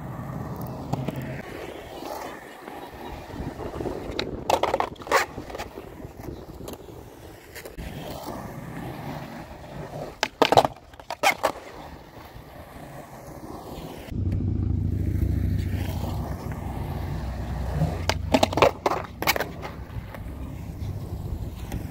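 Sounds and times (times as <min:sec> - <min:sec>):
wheels rolling on concrete: 0:00.0 - 0:21.9
skateboard wooden clacks: 0:00.6 - 0:01.4, 0:03.6 - 0:07.8, 0:09.9 - 0:11.8, 0:15.6 - 0:21.9.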